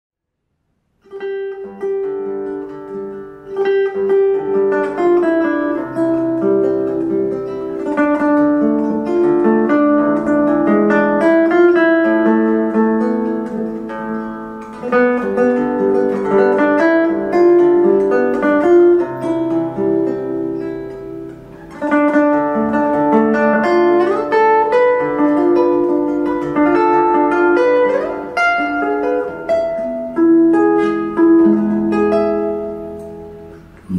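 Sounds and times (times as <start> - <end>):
acoustic guitar plucked and strummed: 1.0 - 33.9.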